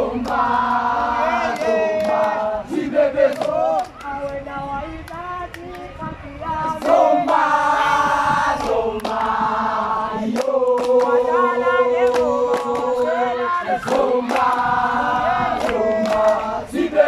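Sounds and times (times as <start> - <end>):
boys singing a chant: 0.0 - 17.0
sharp hand claps: 1.5 - 2.4, 3.3 - 4.4, 8.6 - 9.3, 10.3 - 11.2, 12.0 - 13.0, 13.8 - 14.7, 15.6 - 16.5.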